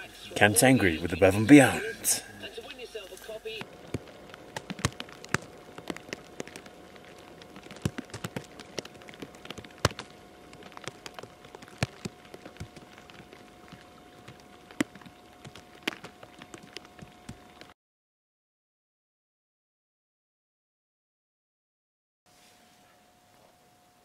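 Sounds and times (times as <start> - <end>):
faint steady hum: 0.0 - 17.8, 22.3 - 24.0
precipitation tapping: 3.6 - 17.7.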